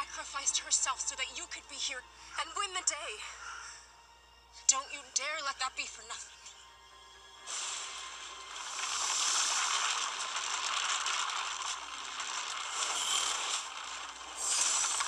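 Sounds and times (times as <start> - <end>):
rushing crackling whoosh: 7.4 - 15.0.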